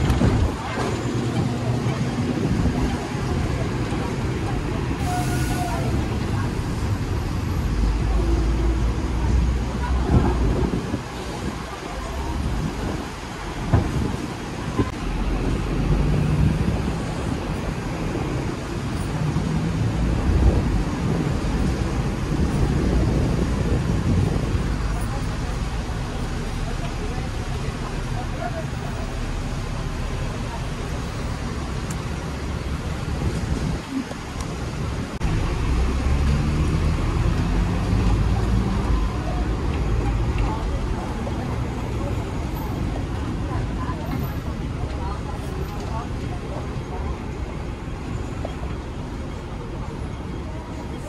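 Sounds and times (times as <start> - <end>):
tram rumble and hum: 0.0 - 51.0.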